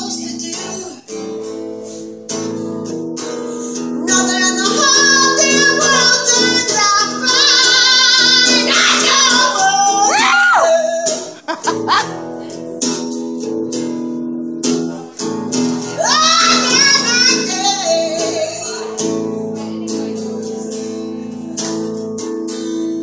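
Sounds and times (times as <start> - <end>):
acoustic guitar strumming: 0.0 - 23.0
woman singing: 4.0 - 12.5, 15.9 - 21.5.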